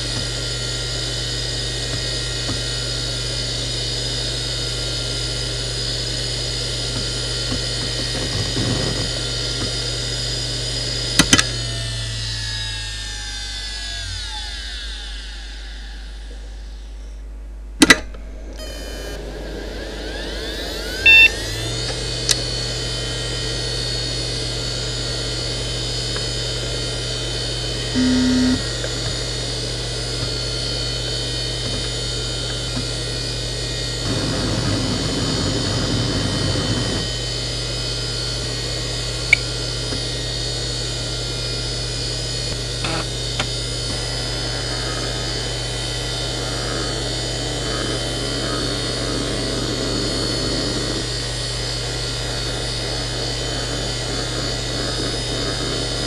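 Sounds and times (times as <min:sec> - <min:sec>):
hard drive whine: 0:00.0 - 0:56.0
hard drive seek rattle: 0:06.6 - 0:10.0, 0:17.8 - 0:22.8, 0:24.8 - 0:37.2, 0:42.4 - 0:56.0
short electronic beeps: 0:21.0 - 0:21.4.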